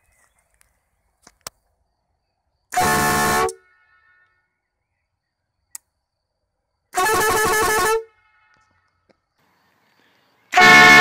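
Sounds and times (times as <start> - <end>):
air horn blast: 2.8 - 4.2, 10.5 - 11.0.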